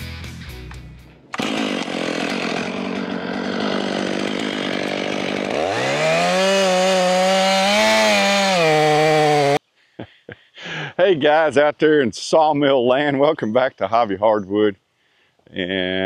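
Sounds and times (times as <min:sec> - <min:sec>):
chainsaw cutting log: 0:01.3 - 0:09.6.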